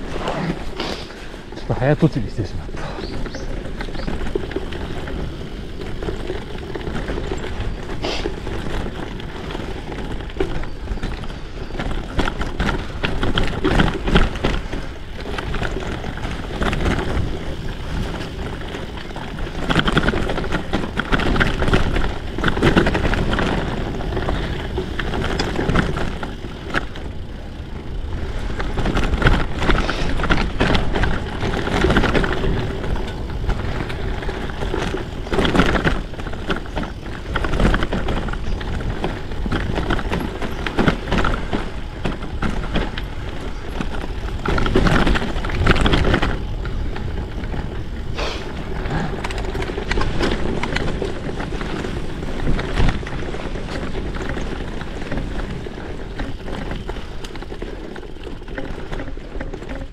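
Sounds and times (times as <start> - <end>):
bike rattles and knocks: 0.0 - 59.9
bike tyre noise on rough ground: 0.0 - 59.9.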